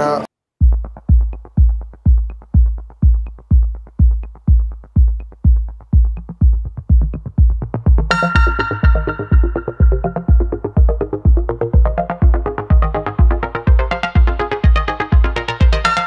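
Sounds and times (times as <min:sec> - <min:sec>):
electronic music with kick drum: 0:00.6 - 0:16.0
held synthesizer chord: 0:08.0 - 0:16.0.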